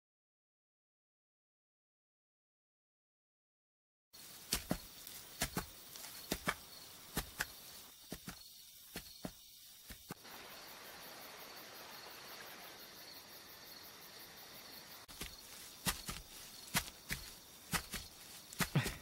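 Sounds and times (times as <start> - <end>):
insects chirring: 4.2 - 19.0.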